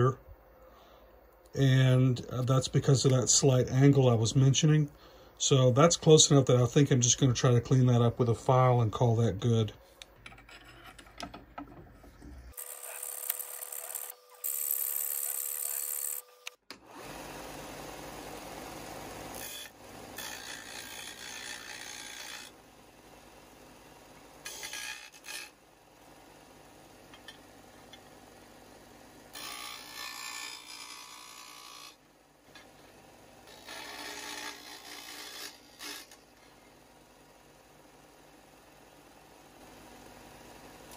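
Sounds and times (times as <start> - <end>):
disc sander grinding steel: 12.0 - 16.5.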